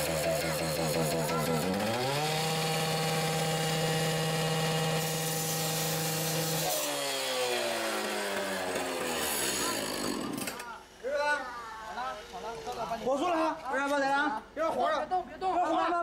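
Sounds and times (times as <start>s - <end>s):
petrol power saw cutting steel: 0.0s - 11.0s, 11.9s - 13.3s.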